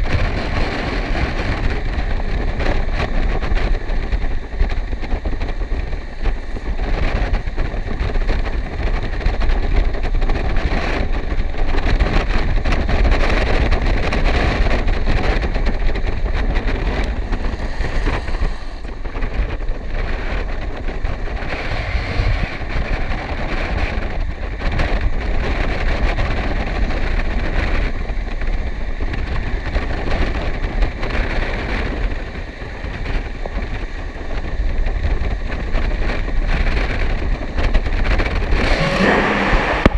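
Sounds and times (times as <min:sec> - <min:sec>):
wind rushing over microphone: 0:00.0 - 0:39.9
skate wheels on wet asphalt: 0:14.0 - 0:29.6, 0:35.9 - 0:39.9.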